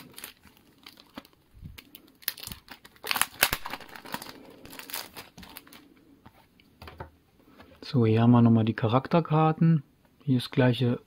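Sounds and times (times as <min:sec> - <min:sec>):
plastic sleeve crinkling: 0:00.0 - 0:06.0.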